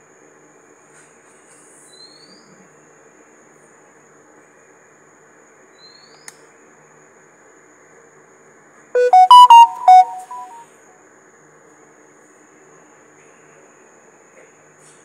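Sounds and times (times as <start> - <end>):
electronic beeping jingle: 9.0 - 10.6
faint rising chirp: 9.0 - 10.6.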